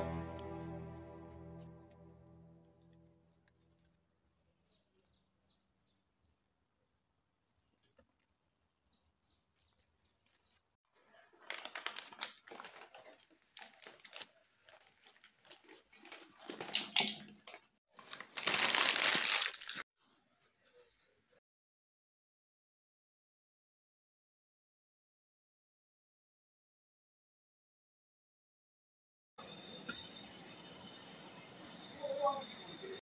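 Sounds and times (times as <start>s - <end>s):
faint bird chirps: 4.6s - 7.6s, 29.4s - 33.0s
wrapping bag crinkling: 11.4s - 19.8s.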